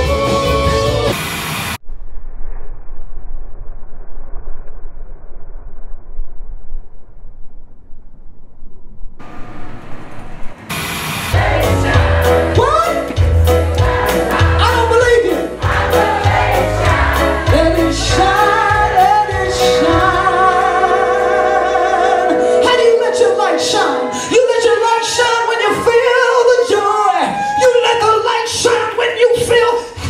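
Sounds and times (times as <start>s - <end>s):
live band playing: 0.0s - 1.2s, 11.1s - 26.1s
woman singing: 17.4s - 23.0s.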